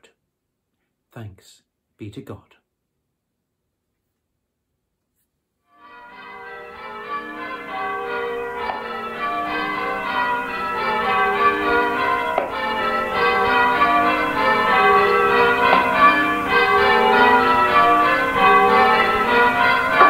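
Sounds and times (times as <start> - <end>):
church bells ringing: 5.7 - 20.0.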